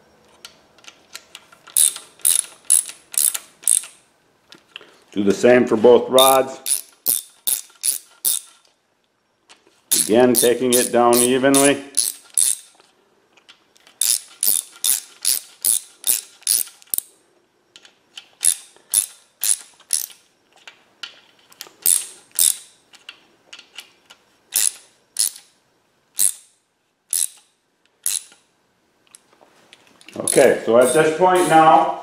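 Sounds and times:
hand ratchet clicking: 0.8 - 4.0, 6.2 - 8.7, 9.9 - 12.8, 13.8 - 17.1, 17.8 - 20.2, 21.8 - 25.5, 26.2 - 28.4.

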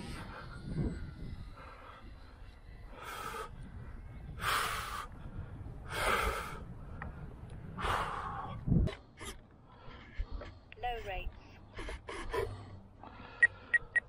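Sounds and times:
wind rumble on microphone: 0.0 - 9.4.

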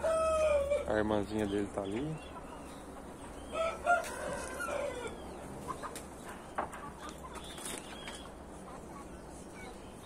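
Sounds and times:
rooster crowing: 0.0 - 0.9, 3.5 - 5.2.

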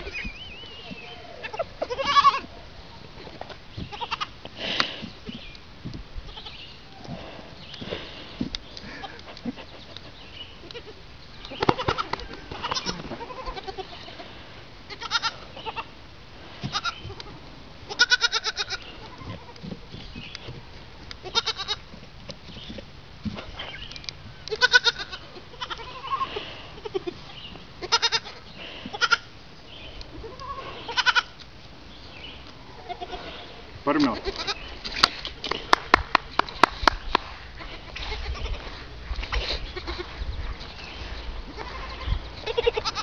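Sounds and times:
goat kids bleating: 0.0 - 2.5, 3.3 - 5.4, 6.2 - 7.4, 10.0 - 16.0, 16.6 - 19.8, 21.2 - 21.9, 24.4 - 31.4, 32.4 - 34.8, 37.5 - 43.0.

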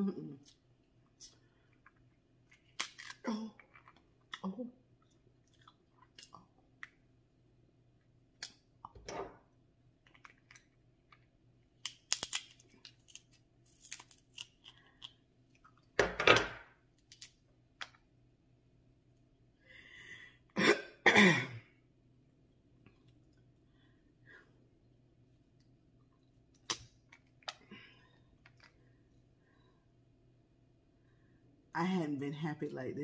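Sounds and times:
crab shells cracking: 2.5 - 4.4, 10.0 - 15.8, 17.0 - 17.9, 26.5 - 27.6
chewing: 5.0 - 7.0.

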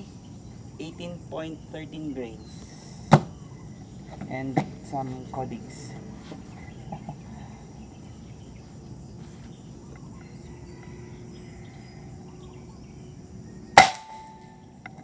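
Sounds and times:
outdoor background hum: 0.0 - 15.0
air rifle shot: 13.8 - 14.3.

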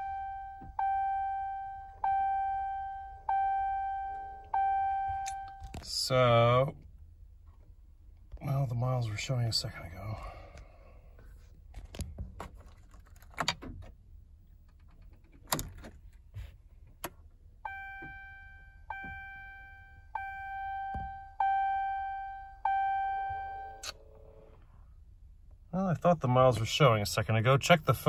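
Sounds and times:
dashboard warning chime: 0.0 - 6.1, 17.6 - 24.6.

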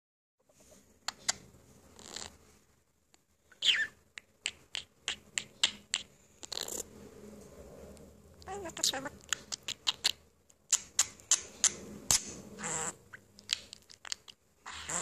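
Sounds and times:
budgerigar chattering: 8.7 - 10.2, 12.6 - 15.0.

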